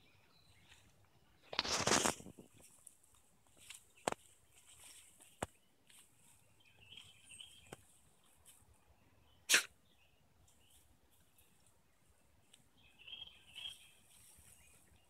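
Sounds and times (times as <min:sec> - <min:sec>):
dog sneezing: 0:09.5 - 0:09.7.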